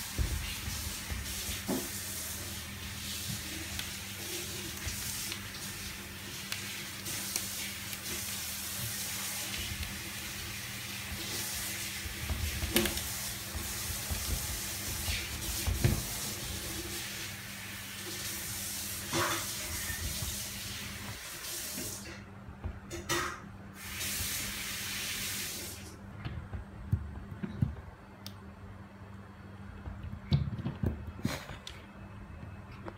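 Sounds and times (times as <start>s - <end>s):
running water hissing: 0.0s - 22.2s, 23.7s - 26.0s.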